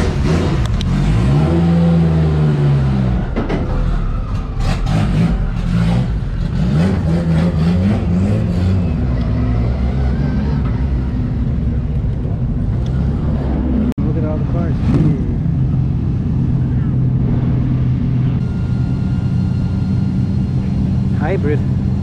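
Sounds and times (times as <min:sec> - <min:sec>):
race car engine revving: 0:00.0 - 0:22.0.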